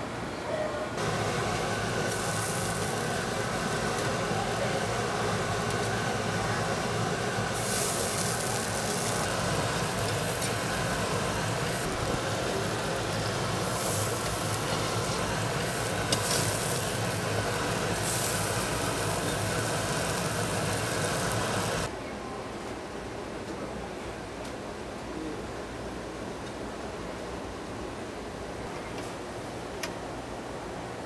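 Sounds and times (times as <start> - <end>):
extraction hood running: 1.0 - 21.9
meat patties sizzling on charcoal: 1.0 - 21.9.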